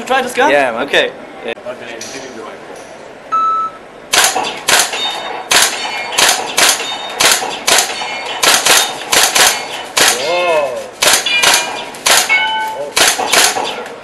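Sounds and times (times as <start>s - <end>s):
airsoft gun shots: 4.1s - 10.4s, 11.0s - 14.0s.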